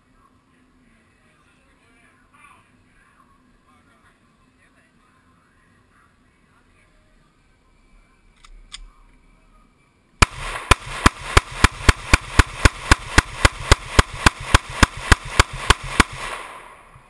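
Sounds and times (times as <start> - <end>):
pistol firing rapid shots: 10.2 - 17.0.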